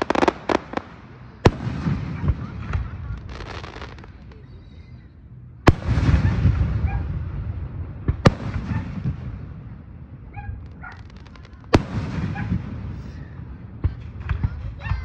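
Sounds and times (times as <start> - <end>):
firework shells bursting: 0.0 - 1.0
echo of bangs: 5.7 - 10.2.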